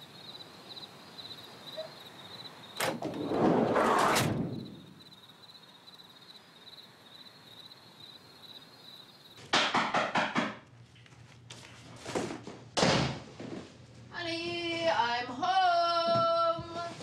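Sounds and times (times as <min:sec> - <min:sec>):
crickets chirping: 0:00.0 - 0:09.4
loud sharp knocks: 0:09.4 - 0:10.6.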